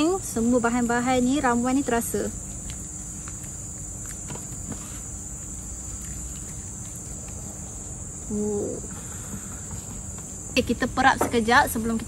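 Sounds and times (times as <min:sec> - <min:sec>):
insects droning: 0:00.0 - 0:12.0
low hum-like call: 0:06.0 - 0:10.1.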